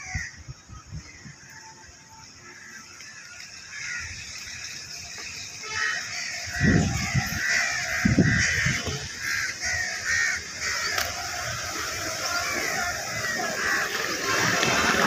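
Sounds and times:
crows cawing: 0.0 - 0.4, 1.0 - 15.0.

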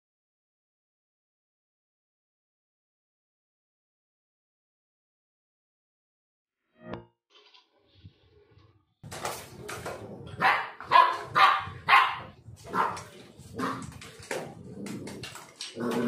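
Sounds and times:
puppy barking: 10.4 - 13.9.

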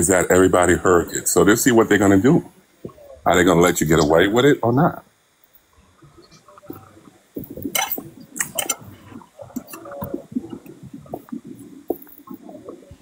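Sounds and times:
man chewing with wet mouth noises: 6.0 - 13.0.

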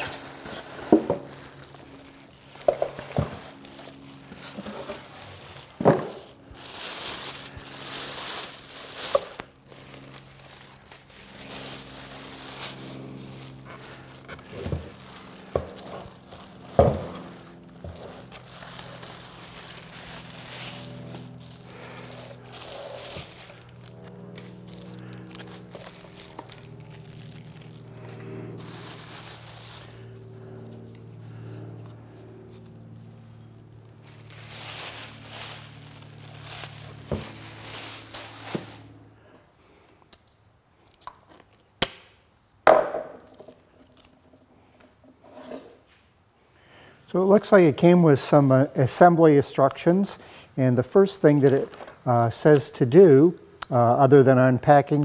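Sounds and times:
plastic and paper crinkling: 0.0 - 30.2, 32.5 - 39.0.

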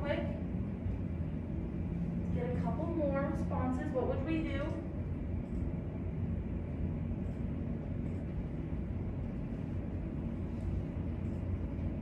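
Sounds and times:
low room noise rumble: 0.0 - 12.0.

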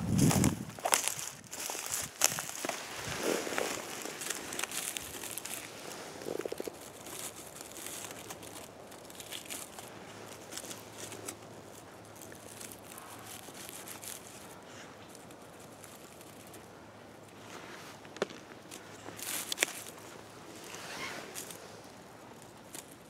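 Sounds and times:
dry leaves rustling and crackling: 0.0 - 23.0.

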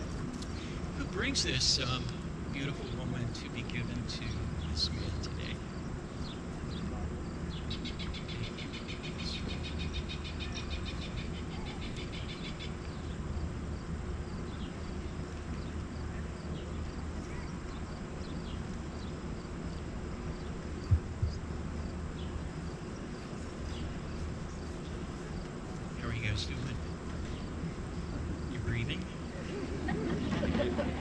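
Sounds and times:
low outdoor background rumble: 0.0 - 31.0
sharp thumps: 20.9 - 21.4.

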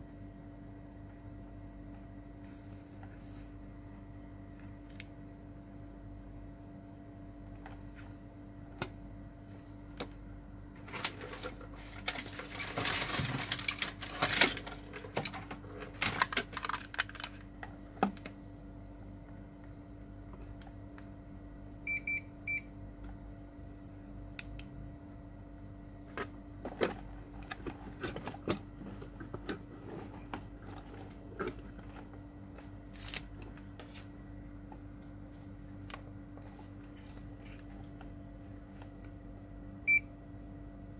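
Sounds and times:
steady electrical hum: 0.0 - 40.9.

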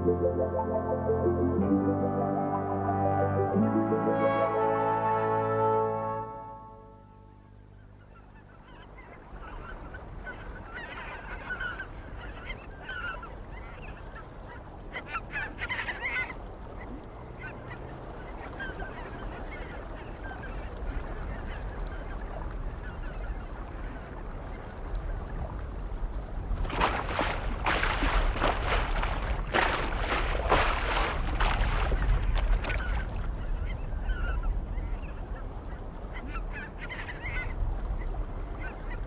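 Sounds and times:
rush of water: 9.2 - 39.0.

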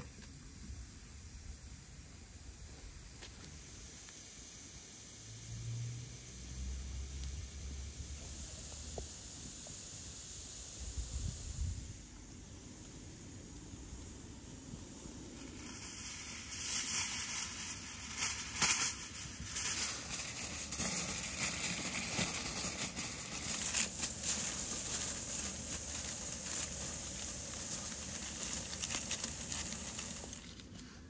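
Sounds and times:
aluminium foil crinkling: 15.5 - 31.0.

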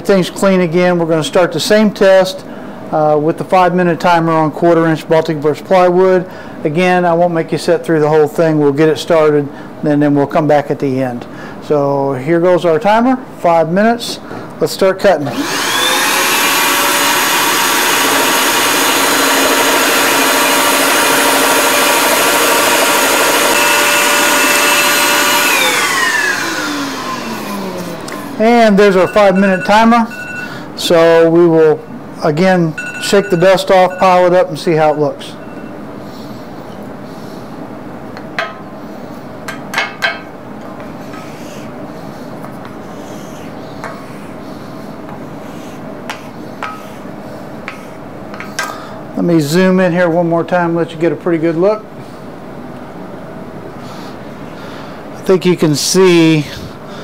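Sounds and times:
steady hum: 0.0 - 57.0
shop vacuum whining: 15.1 - 31.4
scroll saw cutting plywood: 15.3 - 28.4.

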